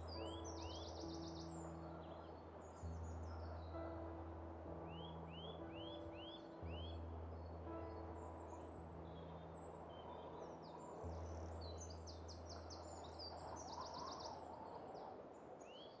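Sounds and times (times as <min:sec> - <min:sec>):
birds chirping and trilling: 0:00.0 - 0:03.8, 0:07.8 - 0:16.0
low sustained music notes: 0:00.0 - 0:16.0.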